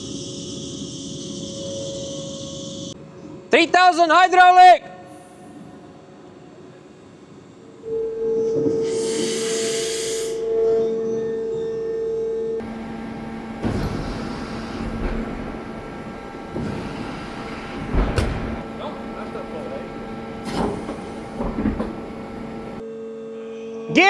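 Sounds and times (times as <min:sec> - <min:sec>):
hiss: 0:08.8 - 0:10.4, 0:12.8 - 0:19.5
hydraulic cart whine: 0:12.6 - 0:22.8
mechanical knocks: 0:12.6 - 0:22.8
rough mechanical running noise: 0:12.6 - 0:22.8.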